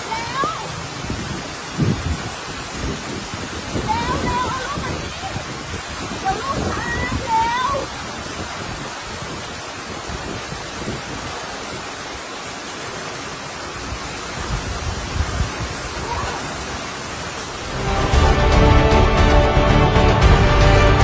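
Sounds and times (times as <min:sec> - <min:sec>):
heavy rain falling: 0:00.0 - 0:21.0.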